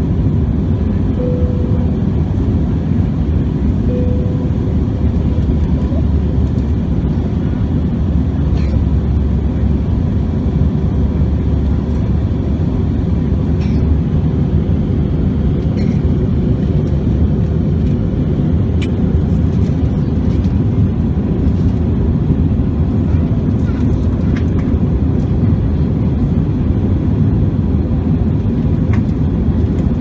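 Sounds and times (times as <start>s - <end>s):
faint steady whine: 0.0s - 18.0s
jet engine rumble: 0.0s - 30.0s.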